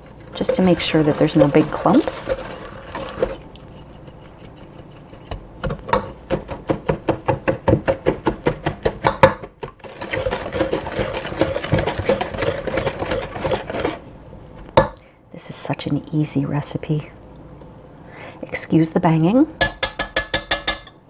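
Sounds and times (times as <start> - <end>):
whisk clicking in metal bowl: 0.1 - 9.2, 9.8 - 14.0, 19.6 - 21.0.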